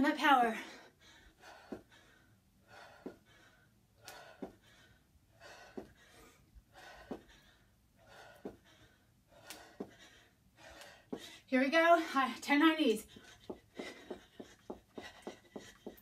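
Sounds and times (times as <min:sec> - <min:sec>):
person gasping breaths: 0:00.6 - 0:11.5
feet thudding on carpeted floor: 0:04.2 - 0:04.8, 0:06.8 - 0:07.4, 0:13.1 - 0:16.0.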